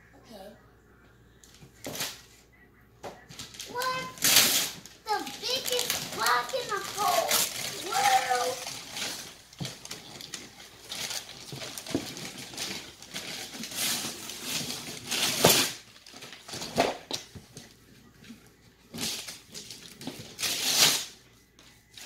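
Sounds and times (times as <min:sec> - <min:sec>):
wrapping paper crinkling: 0:03.3 - 0:16.9, 0:18.9 - 0:21.2.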